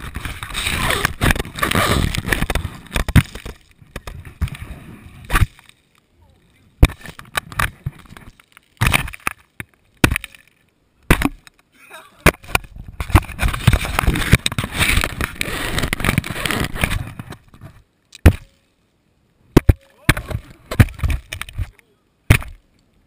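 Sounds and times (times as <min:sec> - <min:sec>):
hands striking a volleyball: 0:22.3 - 0:22.6.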